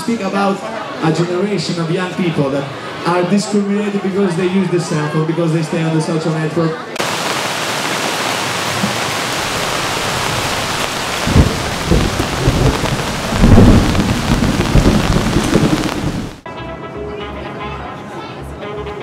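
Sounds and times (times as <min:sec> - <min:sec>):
heavy rain: 0:07.0 - 0:16.4
thunder rumbling: 0:07.0 - 0:16.4.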